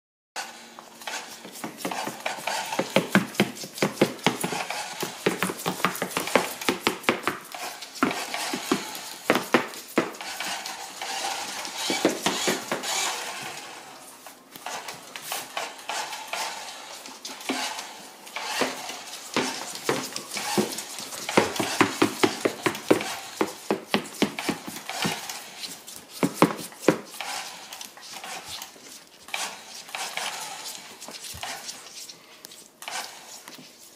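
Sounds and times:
plastic toy truck scraping floor: 0.4s - 31.9s, 32.8s - 33.9s
tortoise claws clicking on wood floor: 18.4s - 31.8s.

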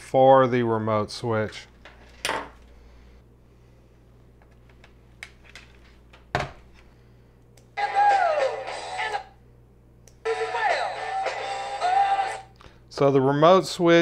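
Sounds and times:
music from small speaker: 7.8s - 9.3s, 10.2s - 12.5s.

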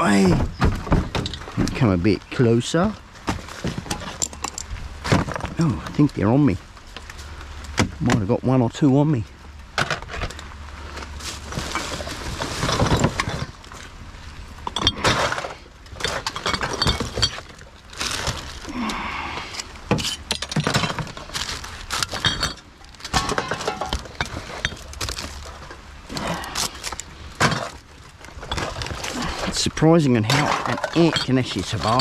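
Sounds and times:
rustling of cardboard and plastic bags: 0.0s - 7.7s, 10.0s - 32.0s
glass bottles clinking: 14.6s - 17.6s, 22.0s - 25.3s, 30.2s - 32.0s.

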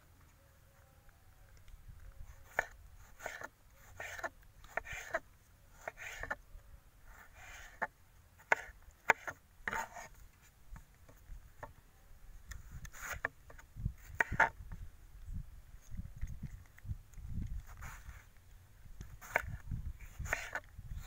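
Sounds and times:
knife scraping cuts: 2.3s - 5.2s, 5.8s - 6.4s, 7.1s - 10.5s, 12.5s - 14.6s, 17.4s - 18.3s, 19.0s - 20.7s.

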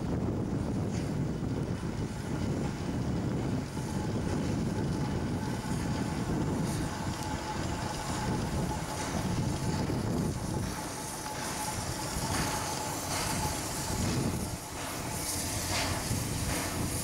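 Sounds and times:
steam locomotive rumble: 0.0s - 17.0s
wind on microphone: 0.0s - 17.0s.

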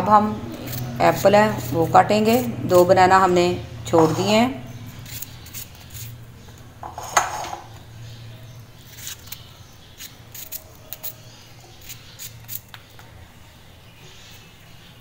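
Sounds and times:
knife cutting apple: 8.8s - 12.8s.

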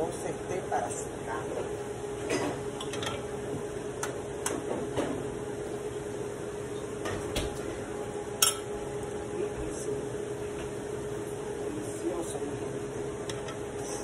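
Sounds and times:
steady hum: 0.0s - 14.0s
dishes and utensils clinking: 2.2s - 3.3s, 8.4s - 8.7s.

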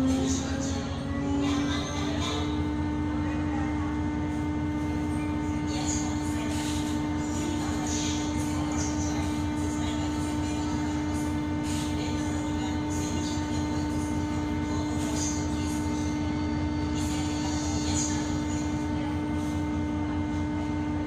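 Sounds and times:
ship engines droning: 0.0s - 21.0s.

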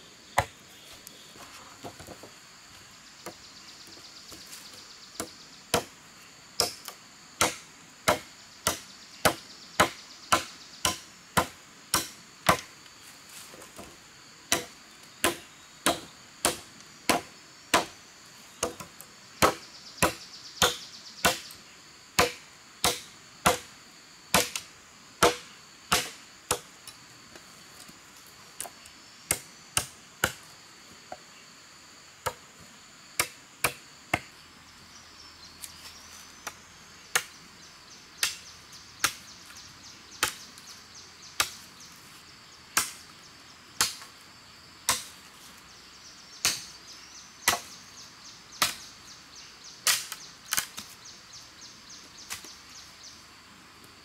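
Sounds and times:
machete chopping wooden pole: 0.4s - 0.6s, 5.2s - 5.9s, 6.6s - 12.7s, 14.5s - 18.0s, 18.6s - 21.5s, 22.2s - 23.7s, 24.3s - 26.7s, 29.3s - 30.4s, 33.2s - 34.3s, 38.2s - 38.4s, 40.2s - 40.4s, 42.8s - 43.0s, 43.8s - 44.1s, 44.9s - 45.2s, 46.4s - 46.7s, 47.4s - 47.7s, 49.8s - 50.9s.

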